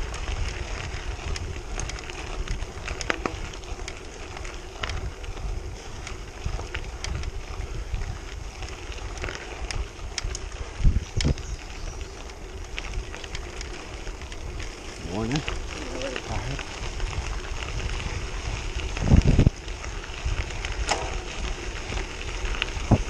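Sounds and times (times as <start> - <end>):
bicycle tyres crunching on gravel: 0.0 - 23.0
loose stones clicking: 0.0 - 23.0
wind buffeting microphone: 0.0 - 23.0.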